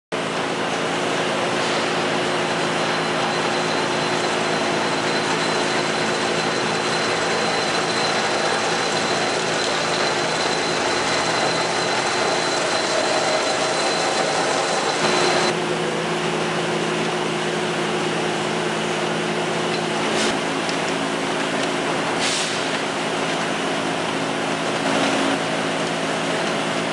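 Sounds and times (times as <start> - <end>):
lathe motor humming: 2.0 - 15.6
thin high tone: 2.3 - 15.6.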